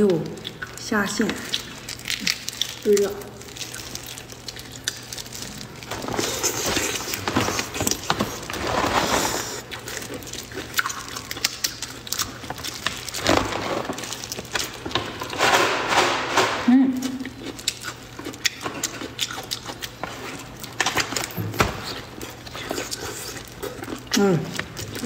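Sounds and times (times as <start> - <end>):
prawn shell cracking: 0.0 - 16.2.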